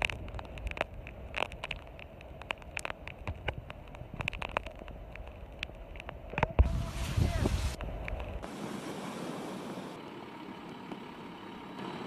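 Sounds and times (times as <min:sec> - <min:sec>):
wind rumbling on microphone: 0:00.0 - 0:09.9
rain striking vehicle: 0:00.0 - 0:12.0.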